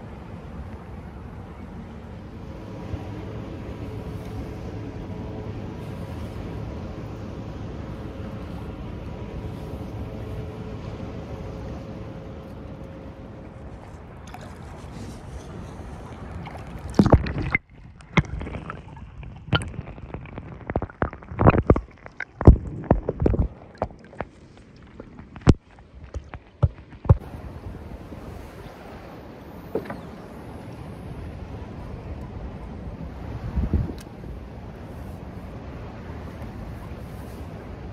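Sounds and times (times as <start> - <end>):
steady rushing noise: 0.0 - 17.6.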